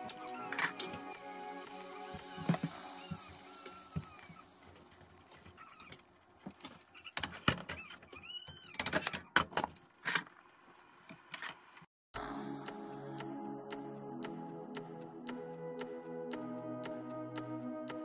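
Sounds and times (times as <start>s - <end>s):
background music: 0.0s - 5.1s, 12.2s - 18.0s.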